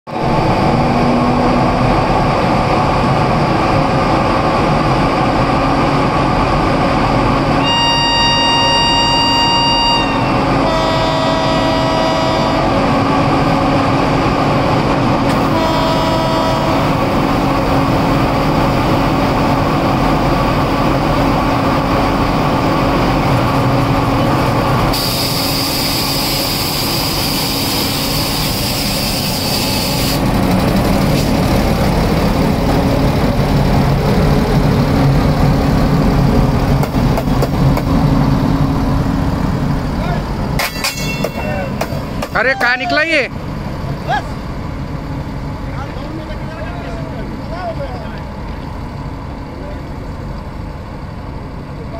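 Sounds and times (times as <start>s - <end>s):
electric locomotive running: 0.2s - 51.9s
train horn: 7.6s - 12.8s, 15.3s - 17.1s.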